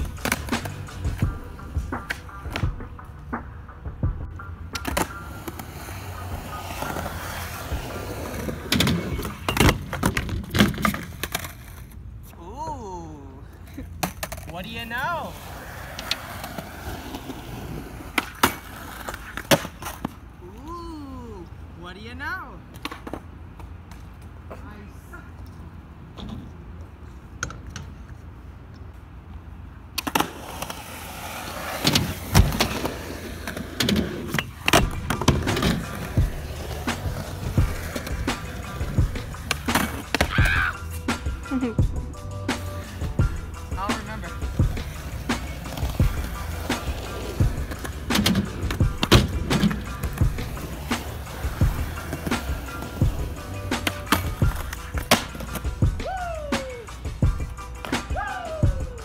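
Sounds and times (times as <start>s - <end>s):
skateboard clacking and thudding: 0.0s - 11.8s, 15.4s - 20.2s, 30.0s - 41.5s, 42.5s - 56.0s
skateboard wheels rolling on concrete: 0.0s - 59.0s.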